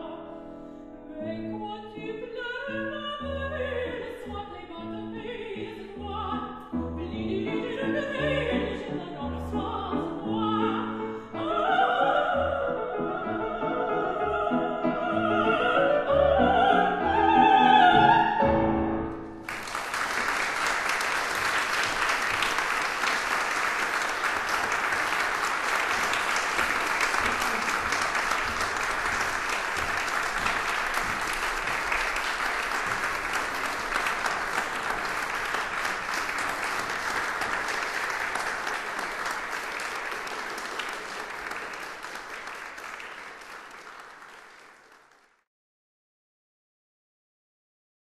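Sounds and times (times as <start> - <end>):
audience applauding: 19.4 - 45.4.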